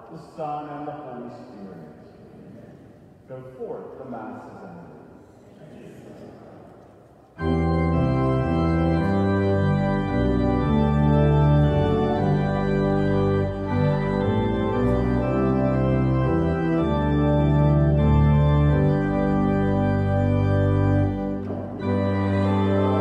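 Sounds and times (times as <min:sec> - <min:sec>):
church organ playing chords: 0:07.4 - 0:23.0.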